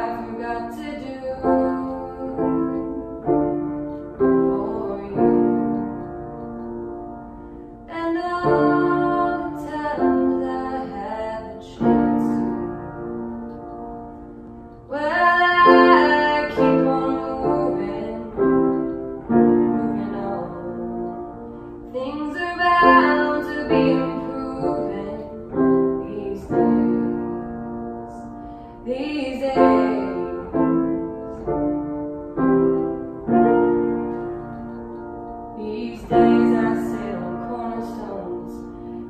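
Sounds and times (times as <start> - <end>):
woman singing: 0.0 - 3.1, 4.1 - 6.0, 7.9 - 12.8, 14.8 - 21.3, 21.9 - 31.7, 35.6 - 38.9
piano chords: 0.0 - 39.0.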